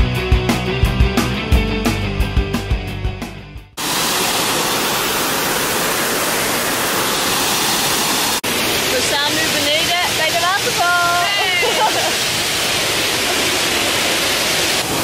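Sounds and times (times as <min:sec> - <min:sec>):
background music with a beat: 0:00.0 - 0:03.8
waterfall rushing: 0:03.8 - 0:15.0.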